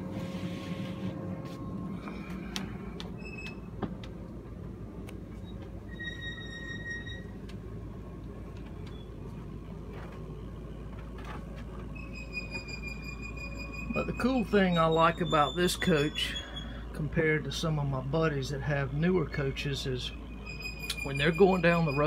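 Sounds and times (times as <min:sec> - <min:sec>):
low mechanical hum: 0:00.0 - 0:22.0
high-pitched squeak: 0:05.4 - 0:07.4, 0:11.9 - 0:16.8, 0:20.4 - 0:22.0.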